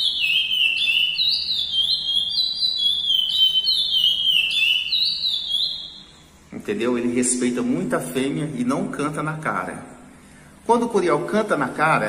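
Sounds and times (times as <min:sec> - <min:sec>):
finch singing whistled notes: 0:00.0 - 0:06.2.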